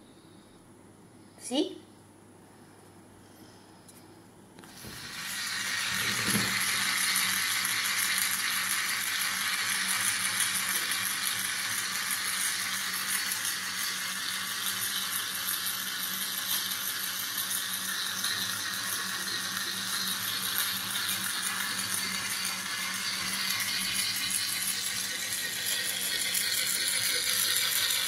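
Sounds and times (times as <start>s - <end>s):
toy water pump motor whirring: 4.6s - 28.0s.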